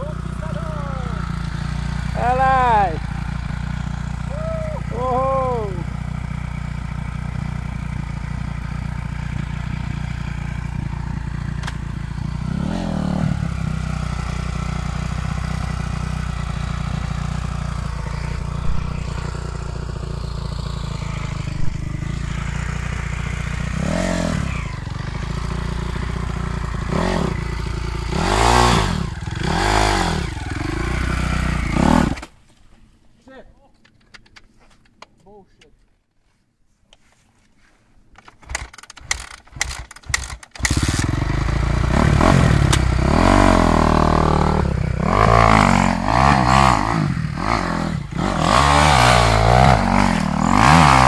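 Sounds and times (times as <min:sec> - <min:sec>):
dirt bike engine idling and revving: 0:00.0 - 0:32.4, 0:38.2 - 0:51.0.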